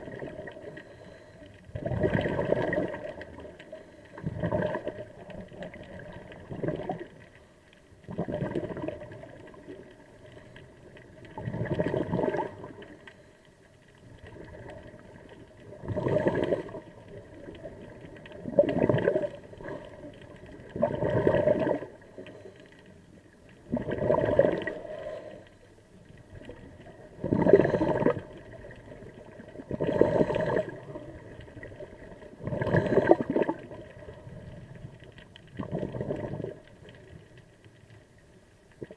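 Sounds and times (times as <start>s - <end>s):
exhaled bubbles gurgling underwater: 0.0s - 38.9s.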